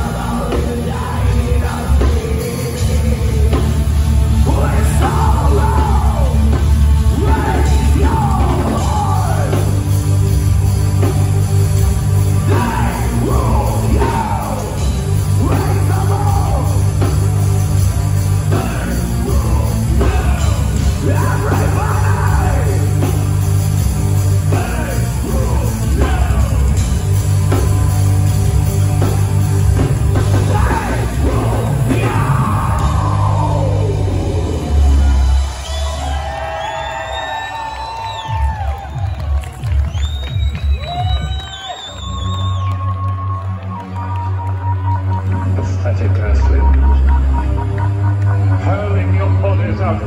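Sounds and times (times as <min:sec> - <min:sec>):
vocals: 0:00.0 - 0:11.3, 0:12.1 - 0:27.7, 0:29.6 - 0:39.0, 0:43.6 - 0:50.0
distorted electric guitars: 0:00.0 - 0:39.4
bass: 0:00.0 - 0:50.0
drums: 0:00.0 - 0:50.0.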